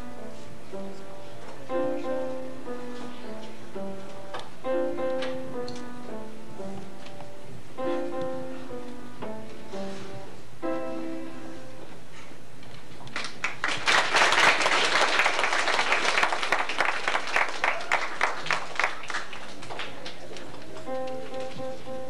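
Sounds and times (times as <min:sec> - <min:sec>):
grand piano chord: 0:00.0 - 0:12.2
audience applause: 0:13.1 - 0:20.8.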